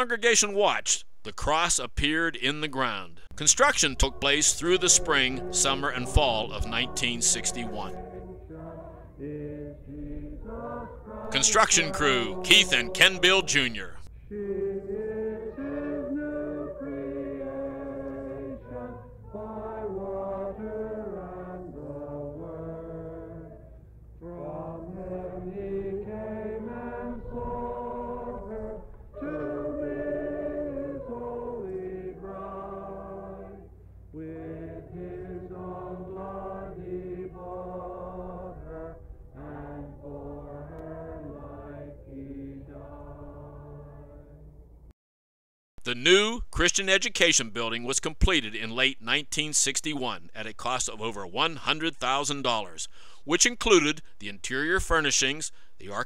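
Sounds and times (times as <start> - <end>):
steady low tone: 2.4 - 44.7
choir singing held notes: 3.2 - 44.4.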